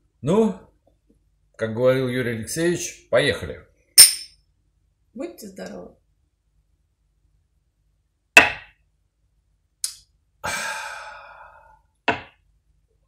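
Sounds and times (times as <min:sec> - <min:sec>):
people exhaling sharply: 0:10.4 - 0:11.8
long breathy sigh: 0:10.4 - 0:11.9.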